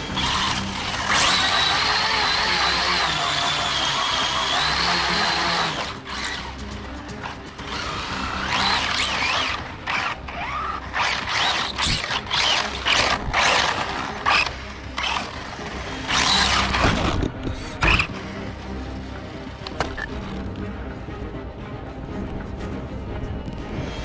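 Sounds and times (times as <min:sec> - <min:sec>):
rc car motor whining: 0:00.0 - 0:06.6, 0:07.2 - 0:18.3.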